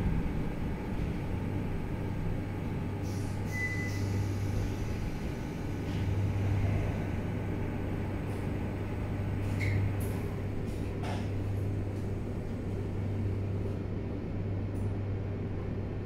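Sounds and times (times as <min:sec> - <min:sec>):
rolling rumble: 0:00.0 - 0:02.8
low hum: 0:00.0 - 0:16.0
train braking to a stop: 0:03.0 - 0:06.0
high brake squeal: 0:03.1 - 0:04.4.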